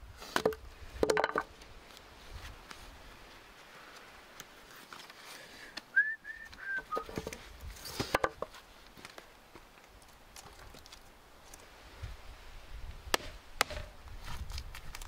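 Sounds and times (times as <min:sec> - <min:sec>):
wooden knocks and clacks: 0:00.4 - 0:01.5, 0:08.0 - 0:08.5.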